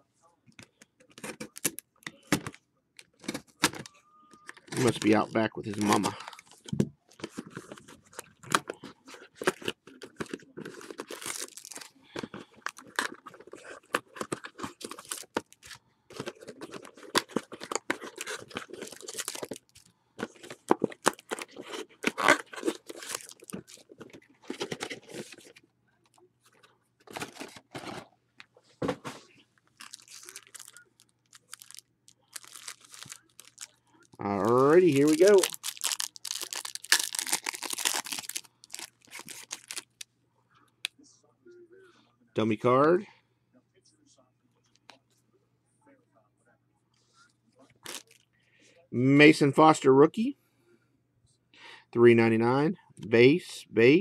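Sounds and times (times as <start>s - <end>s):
card pack wrappers tearing: 4.5s - 6.2s, 7.2s - 25.5s, 29.8s - 40.0s, 47.8s - 48.2s.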